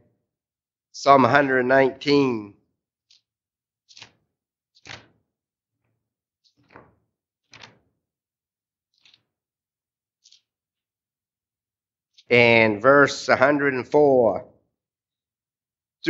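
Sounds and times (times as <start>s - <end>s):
pages turning: 3.1s - 5.2s, 6.5s - 7.9s, 8.9s - 9.4s, 10.2s - 10.5s.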